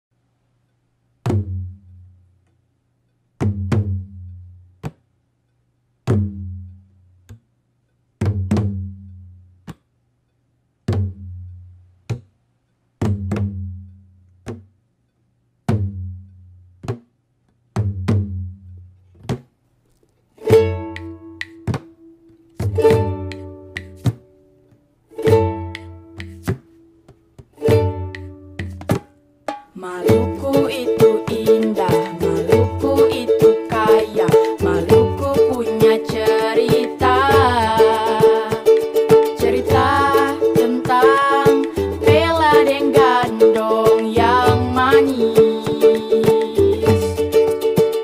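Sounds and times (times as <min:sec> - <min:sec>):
deep drum beats: 0:03.4 - 0:04.2, 0:08.2 - 0:09.0, 0:13.0 - 0:13.8, 0:27.6 - 0:48.0
plucked string chords: 0:20.4 - 0:24.2, 0:25.1 - 0:26.9, 0:27.6 - 0:29.0, 0:30.0 - 0:48.0.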